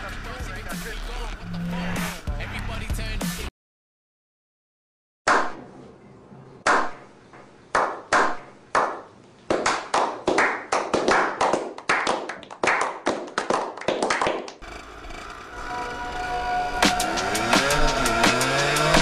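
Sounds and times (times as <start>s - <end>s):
men clapping hands: 7.8s - 14.6s.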